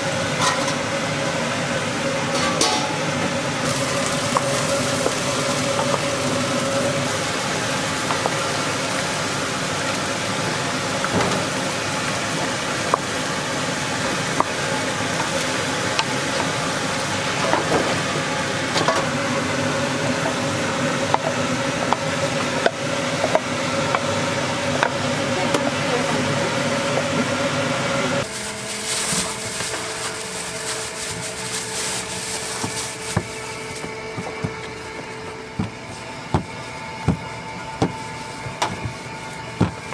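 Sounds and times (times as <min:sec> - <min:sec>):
kitchen hum: 0:00.0 - 0:39.9
food sizzling in a pot: 0:03.6 - 0:17.4, 0:28.2 - 0:33.4
rustling: 0:28.2 - 0:33.5.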